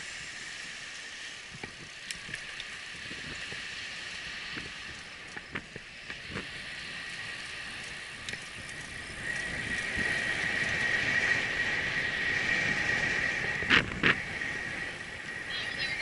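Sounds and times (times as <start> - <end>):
wind and tyre noise: 0.0 - 16.0
bicycle clicks: 0.8 - 12.0
steady high whine: 4.8 - 16.0.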